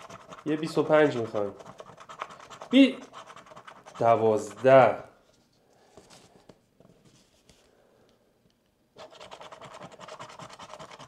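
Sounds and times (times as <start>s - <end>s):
coin scratching scratch card: 0.0s - 5.0s, 9.0s - 11.0s.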